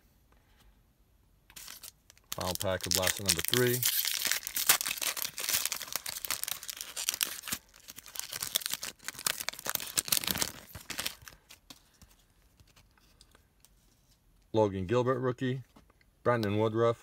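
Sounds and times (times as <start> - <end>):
foil pack tearing and crinkling: 1.6 - 11.5.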